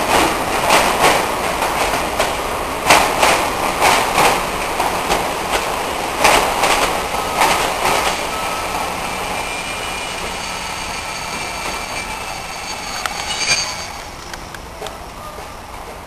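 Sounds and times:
train coaches rolling past: 0.0s - 16.0s
high squeal of train wheels: 5.6s - 15.8s.

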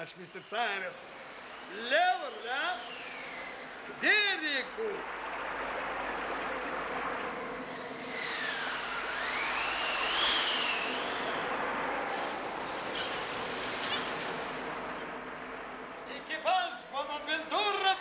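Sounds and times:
gliding whistling tone: 0.3s - 15.2s
waves washing onto shore: 11.0s - 15.9s.

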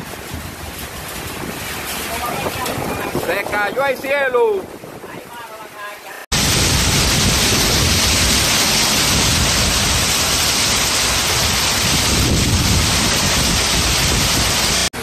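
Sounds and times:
torrential rain pouring: 0.0s - 15.0s
low rumble: 6.3s - 15.0s.

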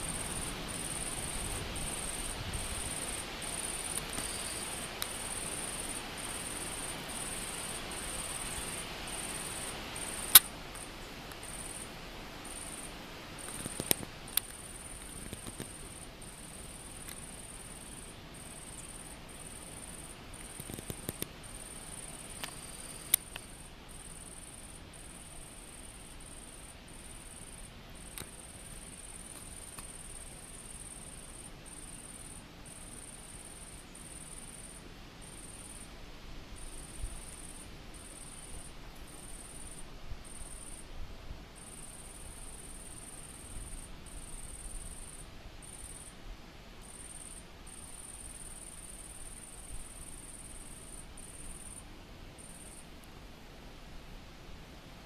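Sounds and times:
insect buzzing: 0.0s - 35.9s.

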